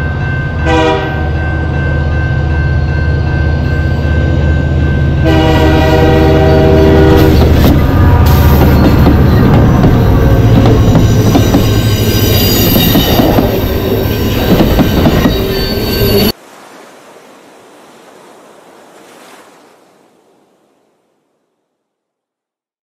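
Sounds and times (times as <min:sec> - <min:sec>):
freight train passing: 0:00.0 - 0:16.4
train wheel squeal: 0:06.9 - 0:16.4.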